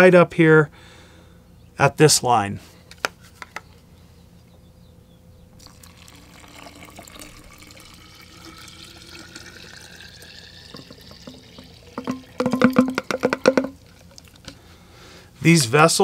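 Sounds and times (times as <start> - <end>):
water pouring into glass jar: 5.6 - 14.5.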